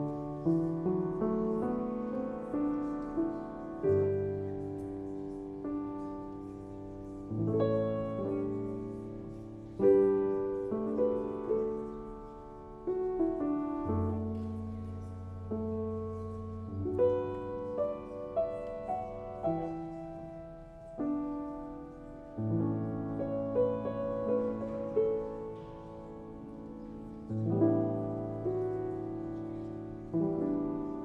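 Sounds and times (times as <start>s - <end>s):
slow solo piano chords: 0.0s - 31.0s.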